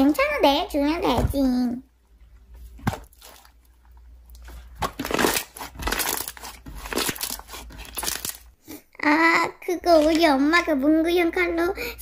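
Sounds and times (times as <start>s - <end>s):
slime squishing: 2.5s - 8.5s
slime crackling and popping: 4.8s - 8.5s.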